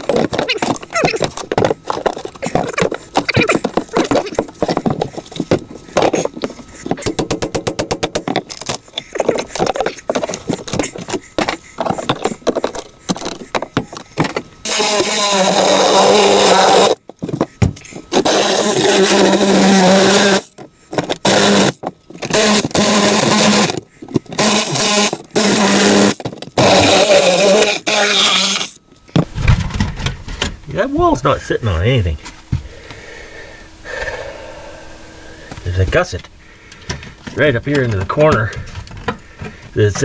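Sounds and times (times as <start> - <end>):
cordless drill grinding wood: 0.0 - 7.3, 8.0 - 28.8
knocks and scrapes of debris: 0.0 - 14.5.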